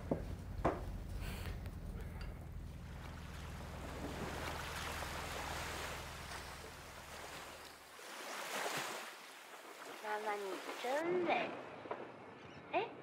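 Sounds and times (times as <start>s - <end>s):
low steady hum: 0.0s - 8.0s
water lapping against boat hull: 2.0s - 12.0s.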